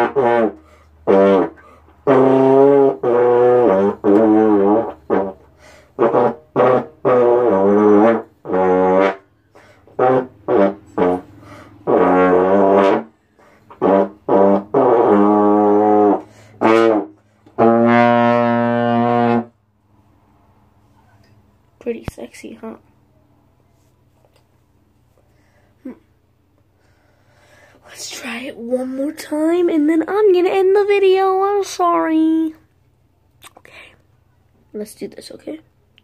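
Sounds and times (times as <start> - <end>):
slide trombone playing: 0.0 - 19.6.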